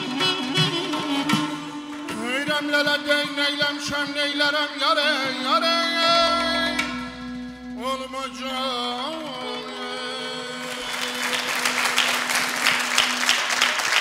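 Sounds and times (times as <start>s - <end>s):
man singing ornamented phrase: 2.2s - 11.7s
saz with held drone note: 5.0s - 12.9s
audience applause: 10.6s - 14.0s.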